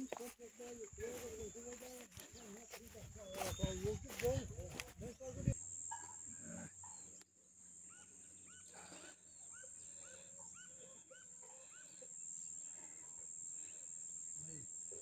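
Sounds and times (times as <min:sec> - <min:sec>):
bird chirping: 0:01.0 - 0:12.5.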